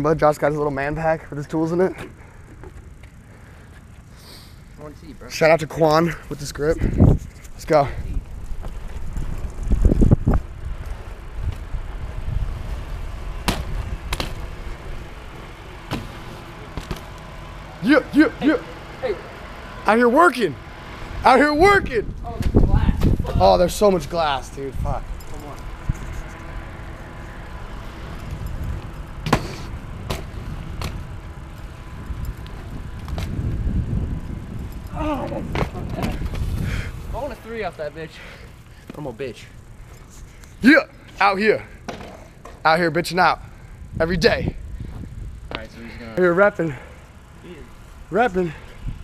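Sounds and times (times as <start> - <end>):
bike tyres rolling on concrete: 0.0 - 49.0
wind: 0.0 - 49.0
bike landing knocks: 12.7 - 17.4, 22.4 - 23.5, 28.1 - 36.9, 41.8 - 42.6.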